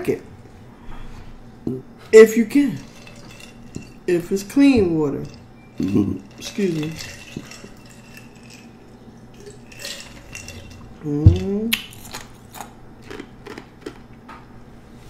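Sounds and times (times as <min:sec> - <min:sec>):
chewing clicks and smacks: 0:11.7 - 0:14.2.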